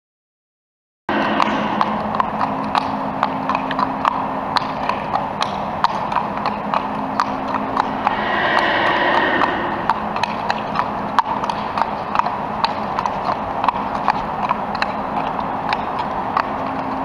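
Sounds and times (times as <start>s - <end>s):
hooves clip-clopping on asphalt: 2.1s - 7.6s, 11.2s - 17.0s.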